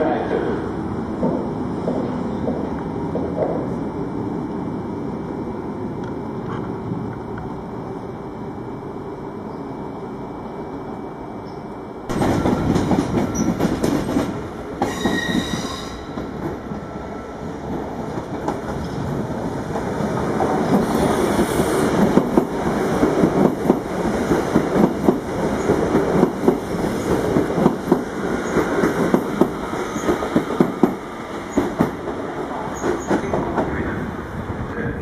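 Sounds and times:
train running past: 0.0 - 35.0
high wheel squeal: 14.8 - 16.1.

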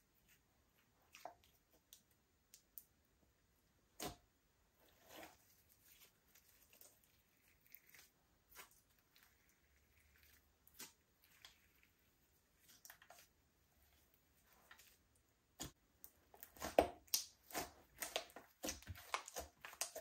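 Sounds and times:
slime squishing and popping: 16.4 - 20.0.

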